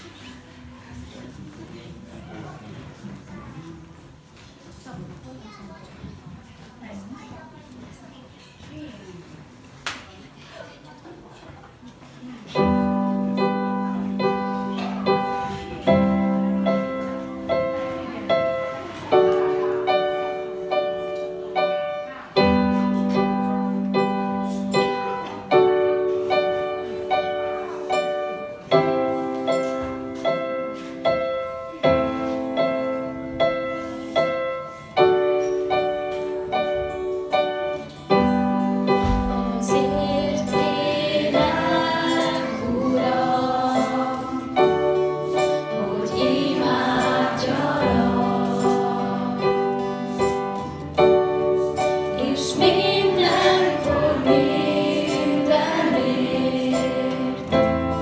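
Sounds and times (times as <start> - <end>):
keyboard piano chords: 12.6 - 58.0
people singing: 39.0 - 50.4, 52.1 - 58.0.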